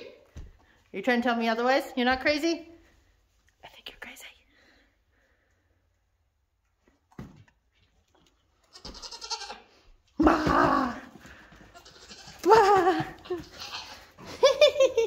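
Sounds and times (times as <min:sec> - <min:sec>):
goats bleating: 0:08.6 - 0:11.0, 0:11.6 - 0:14.2.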